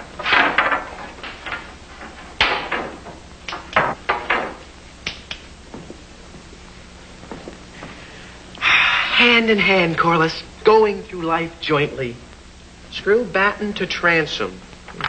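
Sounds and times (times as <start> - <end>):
wooden boards knocking and scraping: 0.1 - 4.6.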